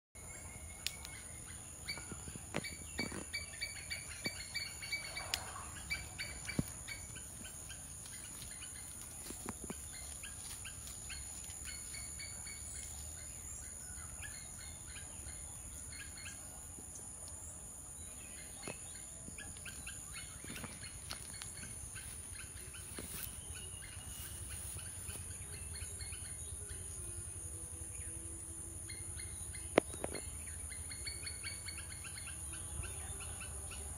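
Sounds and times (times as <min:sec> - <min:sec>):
birds chirping: 0:00.2 - 0:33.9
high-pitched insect drone: 0:20.4 - 0:33.9.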